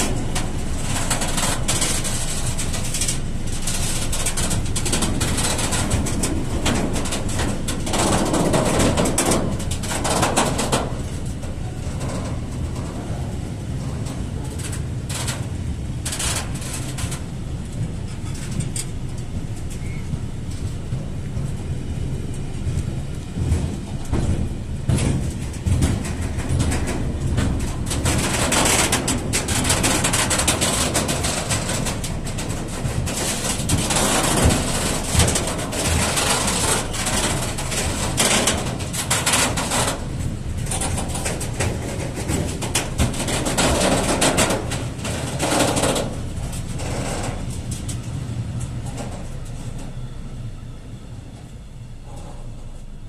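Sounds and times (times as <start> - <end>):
rattle and hiss: 0.0 - 13.0
clacks over rail joints: 0.0 - 50.5, 51.3 - 53.0
steel wheels rumbling on rails: 0.0 - 53.0.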